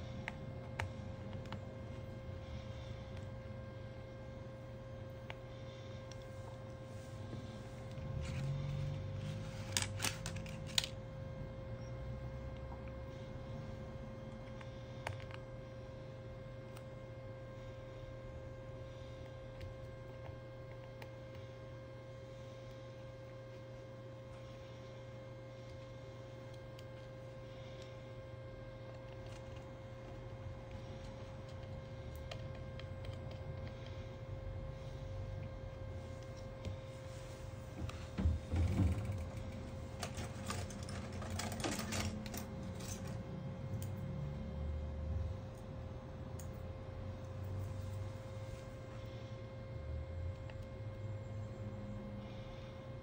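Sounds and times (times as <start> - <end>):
steady electrical hum: 0.0 - 53.0.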